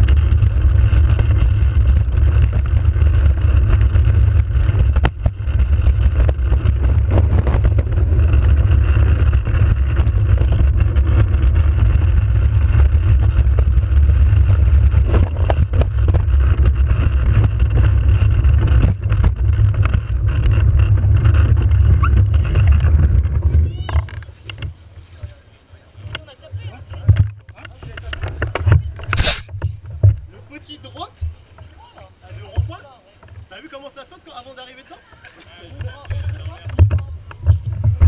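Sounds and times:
cart body rattling: 0.0s - 25.2s
cart wheels rumbling on asphalt: 0.0s - 38.0s.

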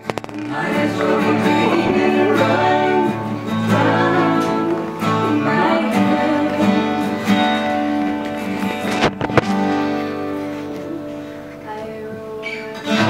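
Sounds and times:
person singing: 0.0s - 7.6s, 10.8s - 13.0s
acoustic guitar playing: 0.0s - 13.0s.

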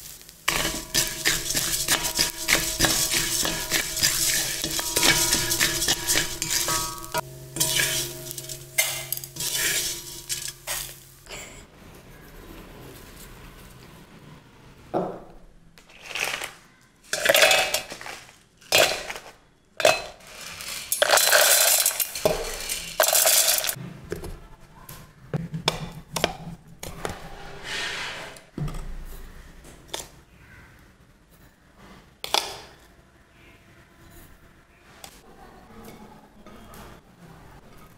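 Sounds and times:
metal clinking on steel: 0.5s - 11.1s
mixer grinder grinding lentils: 0.5s - 11.2s.

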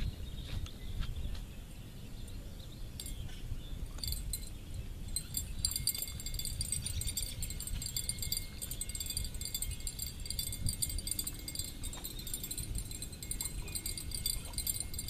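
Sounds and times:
fishing reel clicking rapidly: 5.2s - 15.0s.

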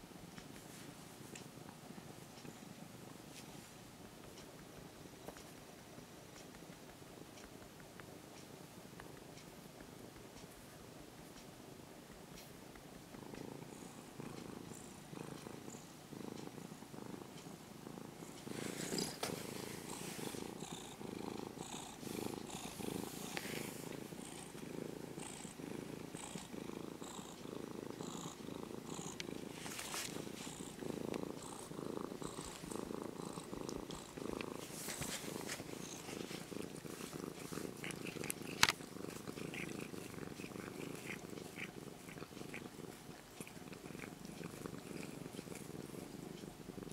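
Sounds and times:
cat purring: 0.0s - 46.9s
hand rustling over fur: 34.6s - 37.7s.

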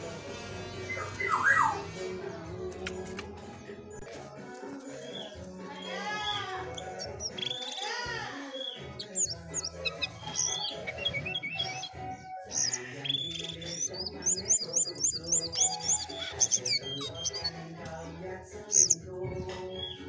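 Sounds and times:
songbird chirping and whistling: 0.7s - 2.1s, 4.7s - 17.6s, 18.5s - 20.0s.

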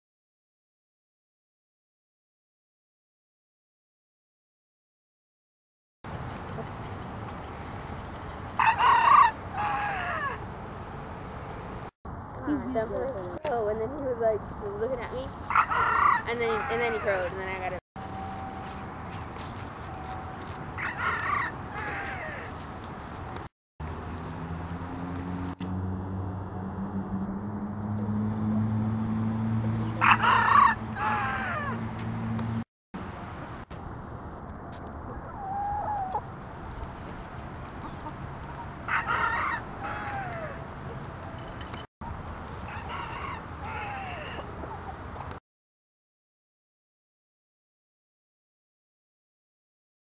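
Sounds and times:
rooster crowing: 8.6s - 10.4s, 15.5s - 17.2s, 20.8s - 22.4s, 30.0s - 31.8s, 38.9s - 40.6s, 42.7s - 44.4s.

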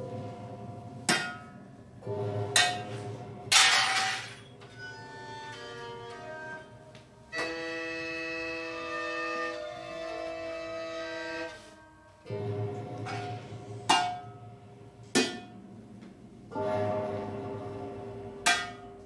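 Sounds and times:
hurdy-gurdy drone: 4.6s - 13.3s.

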